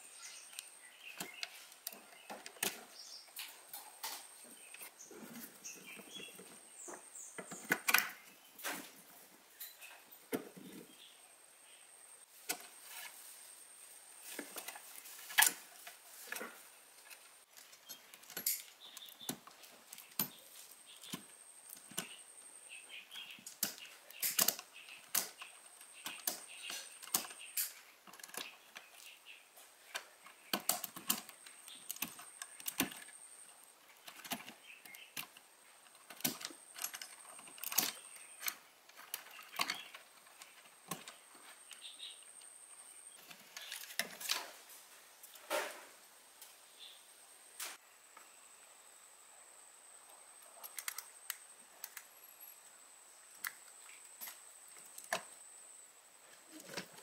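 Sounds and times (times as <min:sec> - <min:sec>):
small parts and tools clinking: 0:14.3 - 0:22.2, 0:22.9 - 0:29.1, 0:29.8 - 0:42.5.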